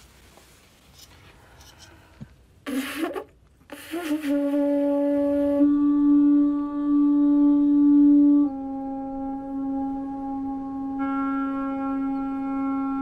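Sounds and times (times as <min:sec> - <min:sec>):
conch shell trumpet blowing: 0:02.6 - 0:13.0.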